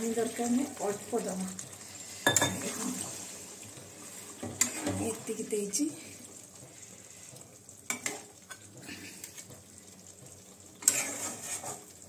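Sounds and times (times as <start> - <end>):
faint sizzling: 0.0 - 12.0
metal spatula scraping a pan: 4.4 - 5.1, 10.8 - 12.0.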